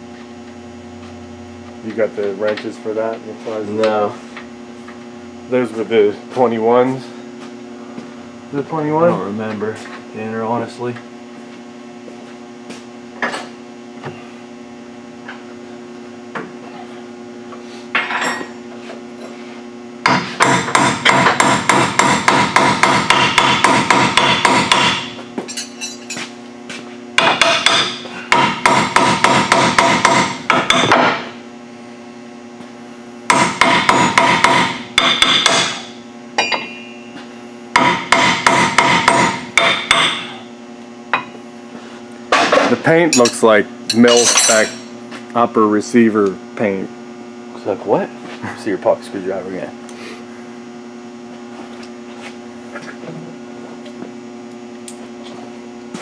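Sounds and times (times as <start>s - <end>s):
impact wrench hammering: 20.0s - 26.0s, 27.2s - 31.3s, 33.3s - 36.9s, 37.7s - 40.4s, 42.3s - 44.9s.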